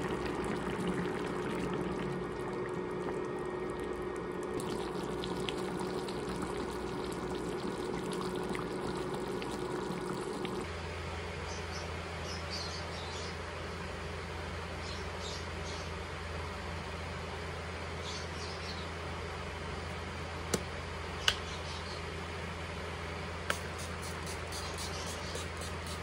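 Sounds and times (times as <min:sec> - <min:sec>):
sauce bubbling in a pan: 0:00.0 - 0:10.7
steady low hum: 0:00.0 - 0:26.0.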